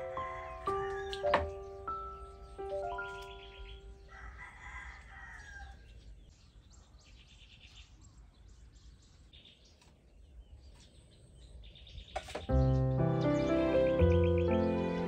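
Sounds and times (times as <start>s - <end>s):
small birds chirping: 0.0s - 15.0s
rooster crowing: 0.1s - 1.4s, 4.0s - 5.9s.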